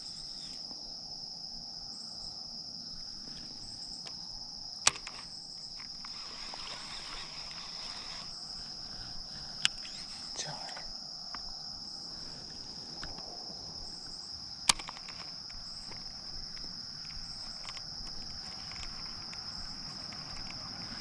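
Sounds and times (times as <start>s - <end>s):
insects chorus: 0.0s - 21.0s
sharp click: 4.8s - 8.2s, 14.6s - 19.4s.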